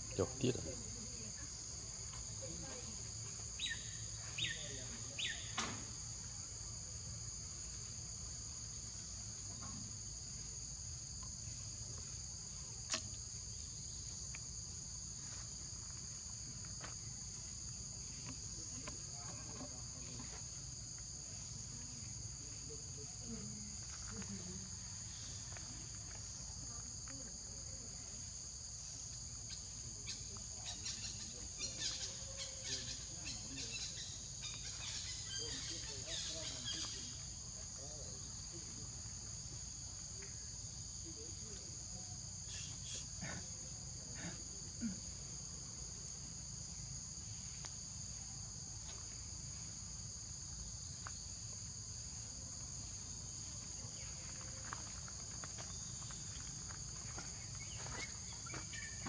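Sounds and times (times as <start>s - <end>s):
insects droning: 0.0s - 59.0s
rustles: 50.6s - 59.0s.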